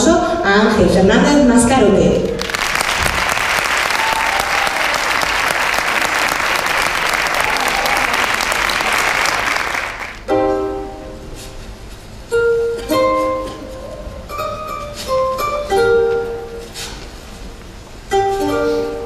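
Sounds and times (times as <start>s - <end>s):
audience applauding: 2.3s - 10.3s.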